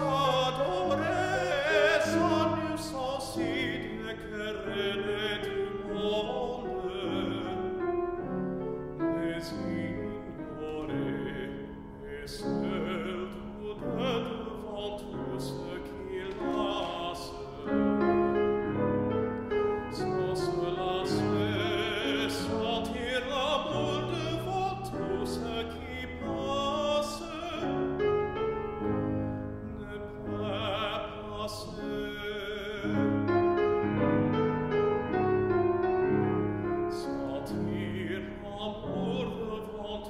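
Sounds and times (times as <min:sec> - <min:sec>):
tenor singing operatically: 0:00.0 - 0:08.1, 0:19.7 - 0:28.4
grand piano: 0:00.0 - 0:40.0.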